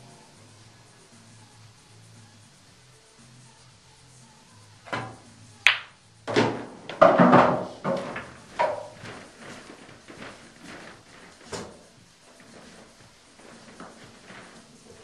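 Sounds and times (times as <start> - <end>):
pool cue striking ball: 4.9 - 9.2
pool balls knocking cushions: 4.9 - 15.0.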